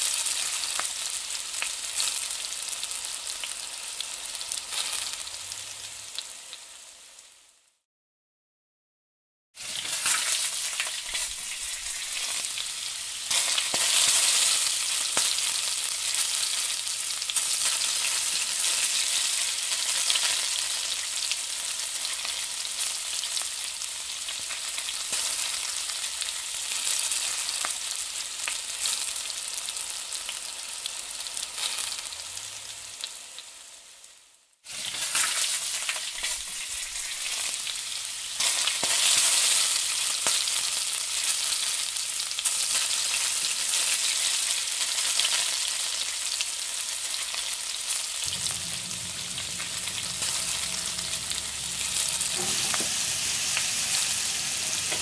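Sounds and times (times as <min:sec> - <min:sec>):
onions sizzling in a pan: 0:00.0 - 0:07.8, 0:09.6 - 0:55.0
low hum: 0:48.3 - 0:55.0.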